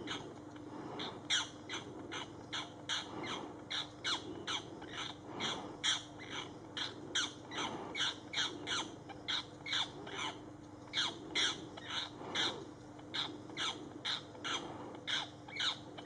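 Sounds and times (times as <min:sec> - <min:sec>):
harsh bird squawks: 0:01.0 - 0:15.9.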